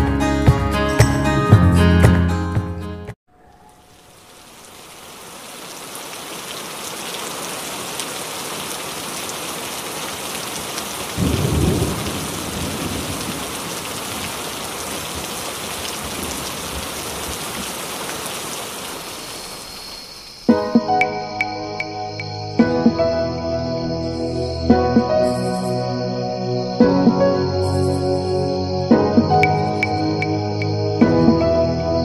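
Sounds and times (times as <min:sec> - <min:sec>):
rain falling: 0:03.4 - 0:22.4
low rumble of thunder: 0:11.1 - 0:17.4.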